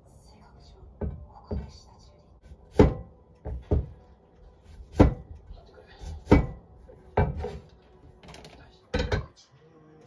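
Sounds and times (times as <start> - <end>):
cleaver chopping on cutting board: 2.7 - 3.9, 4.7 - 5.3, 6.1 - 6.6.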